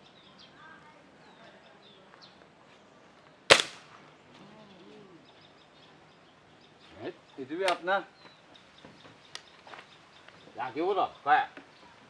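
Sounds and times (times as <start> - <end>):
faint birds chirping: 0.0 - 12.0
air rifle shot crack: 3.5 - 3.9.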